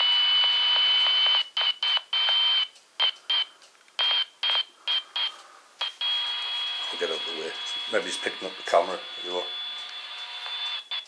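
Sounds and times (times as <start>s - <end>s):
radio hiss: 4.8s - 11.0s
radio whistle-like tone: 6.0s - 9.5s.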